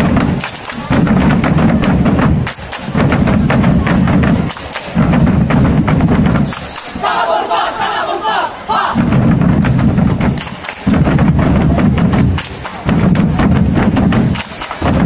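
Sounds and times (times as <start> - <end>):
fast rhythmic percussion: 0.0 - 15.0
group shouting together: 7.0 - 9.0.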